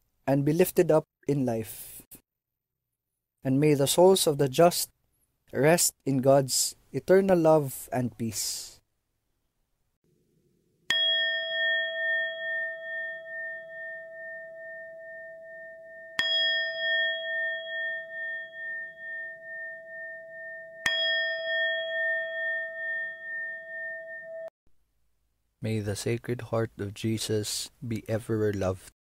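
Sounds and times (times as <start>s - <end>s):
bell ringing: 10.9s - 24.5s.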